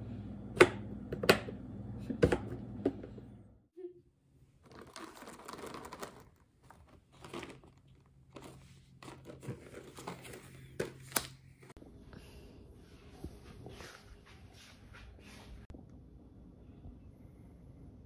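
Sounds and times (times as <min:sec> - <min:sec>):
cardboard rustling and crinkling: 0:04.6 - 0:11.7.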